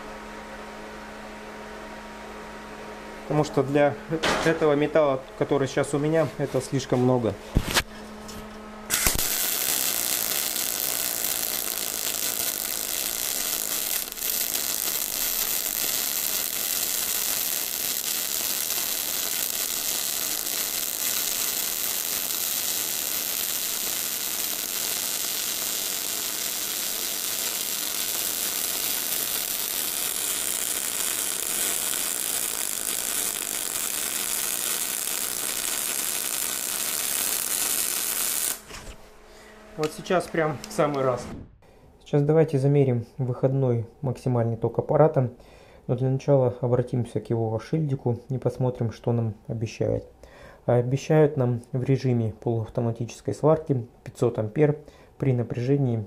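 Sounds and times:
welding arc crackling: 8.9s - 39.0s.

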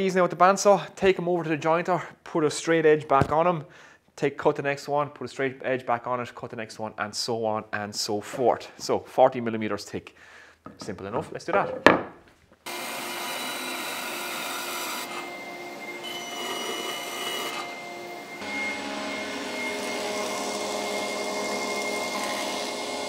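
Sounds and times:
planer-jointer cutting board: 12.7s - 23.0s.

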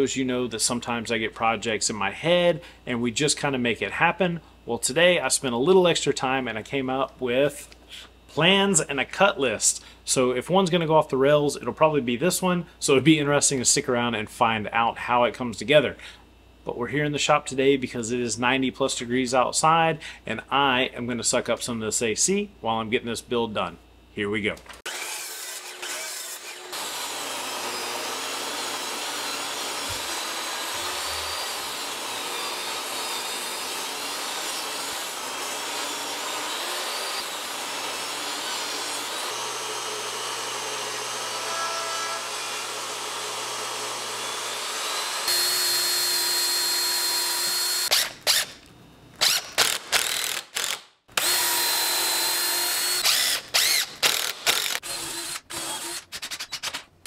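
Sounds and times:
table saw cutting wood: 24.8s - 48.6s, 49.2s - 56.7s
cordless drill driving screws: 24.9s - 41.2s, 42.6s - 48.6s, 49.2s - 56.9s.

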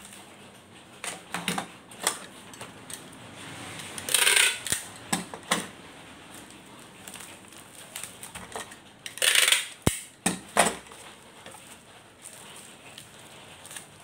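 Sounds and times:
bubble wrap crinkling: 0.0s - 0.9s, 6.0s - 14.0s.

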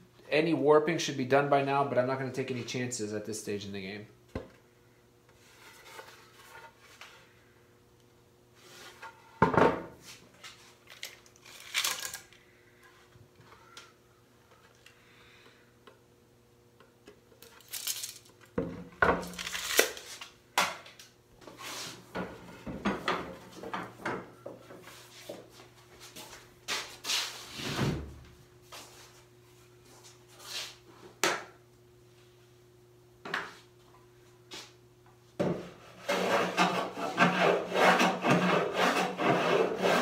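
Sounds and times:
tape measure and tools rattling: 17.4s - 18.4s.

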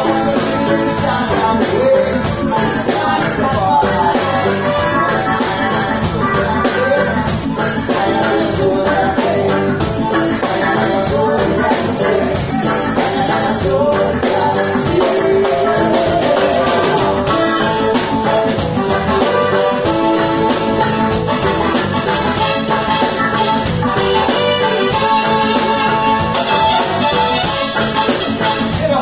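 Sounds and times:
drum kit beat: 0.0s - 29.0s
electric guitar: 0.0s - 29.0s
keyboard: 0.0s - 29.0s.

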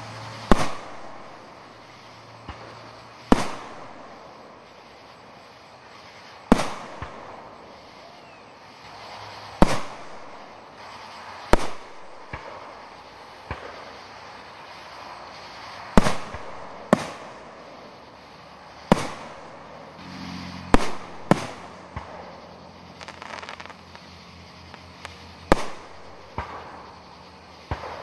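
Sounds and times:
firework bangs echoing: 0.2s - 28.0s
faint firework pops: 0.4s - 1.3s, 2.4s - 4.3s, 6.4s - 14.0s, 15.9s - 17.6s, 18.8s - 19.7s, 20.7s - 28.0s.

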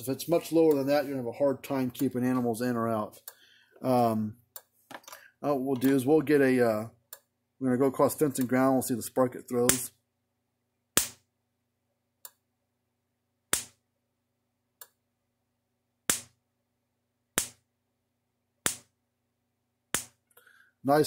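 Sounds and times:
electric spark snaps: 11.0s - 11.2s, 13.5s - 13.8s, 16.1s - 16.4s, 19.9s - 20.2s.

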